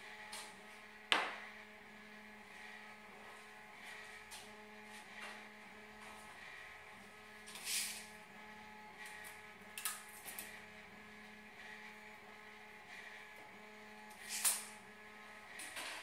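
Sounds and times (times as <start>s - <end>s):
tape measure swish: 7.5s - 8.1s, 14.2s - 14.8s.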